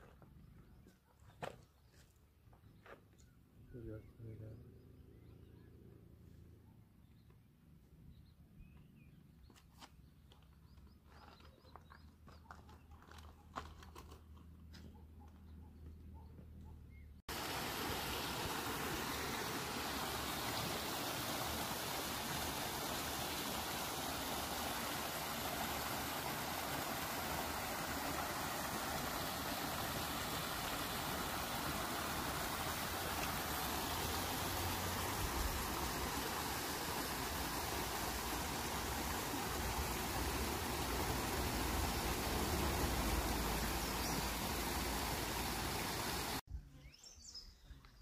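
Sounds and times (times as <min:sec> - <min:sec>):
water rushing over rocks: 0:17.3 - 0:46.4.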